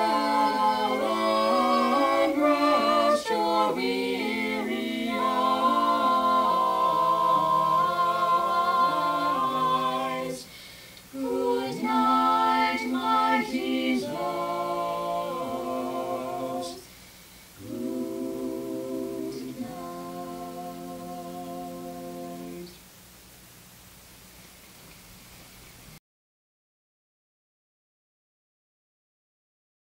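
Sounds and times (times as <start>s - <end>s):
a cappella choir singing a hymn: 0.0s - 22.8s.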